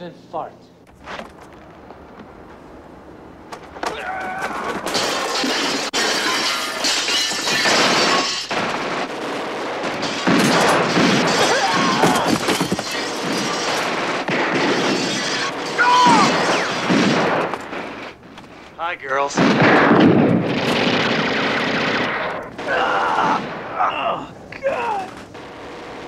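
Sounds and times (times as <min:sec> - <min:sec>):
crashing and shattering: 0:03.6 - 0:08.9, 0:10.0 - 0:17.9.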